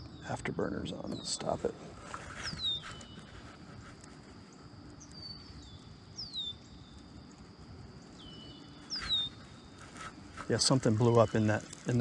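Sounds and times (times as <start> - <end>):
bird whistles sliding downward: 8.2 - 10.1.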